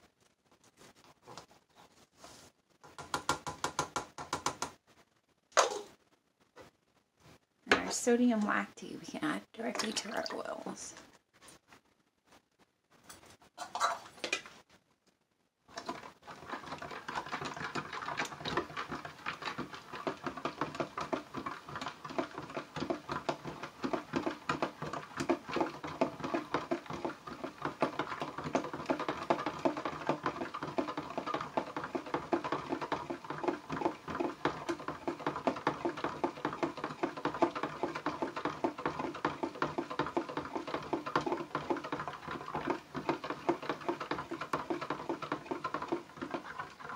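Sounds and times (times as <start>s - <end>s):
utensil scraping plastic pitcher: 15.7s - 46.9s.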